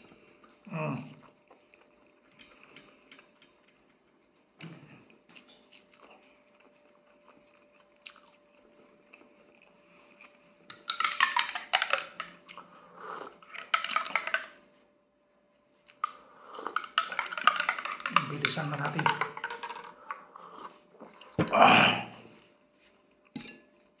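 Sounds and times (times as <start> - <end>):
chewing and biting food: 0.4 - 14.5.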